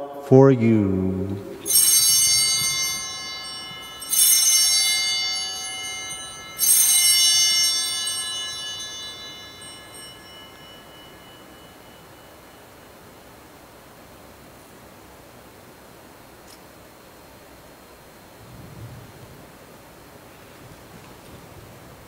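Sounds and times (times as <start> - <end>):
altar bells ringing: 1.5 - 13.4.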